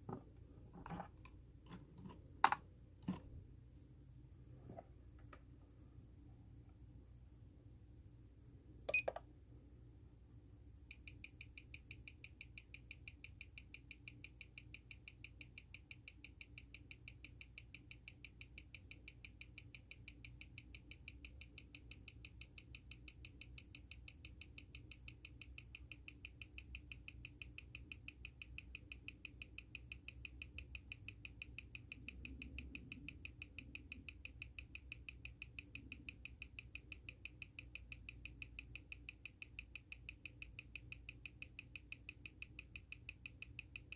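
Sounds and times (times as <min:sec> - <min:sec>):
watch ticking: 0:10.9 - 0:43.9.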